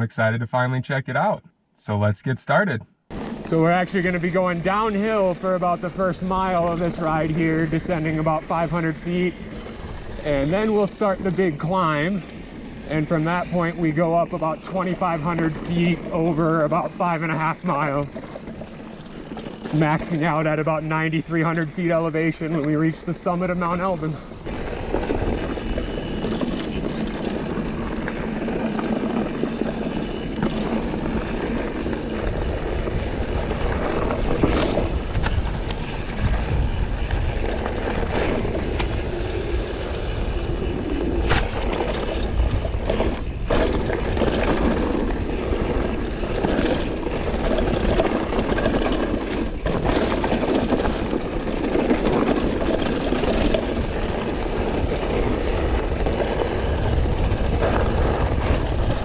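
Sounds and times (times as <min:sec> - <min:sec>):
bike clattering: 0:03.1 - 0:59.0
wind rush over microphone: 0:24.3 - 0:59.0.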